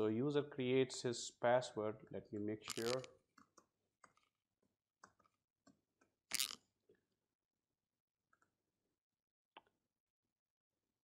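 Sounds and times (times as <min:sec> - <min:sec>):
mouse clicks: 0:02.7 - 0:03.1.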